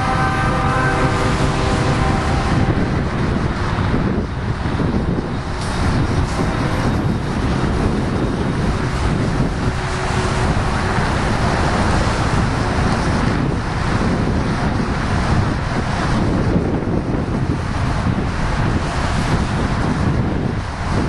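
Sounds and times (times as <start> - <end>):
freight trains rumbling past: 0.0 - 21.0
highway traffic passing: 0.0 - 21.0
wind buffeting microphone: 0.0 - 21.0.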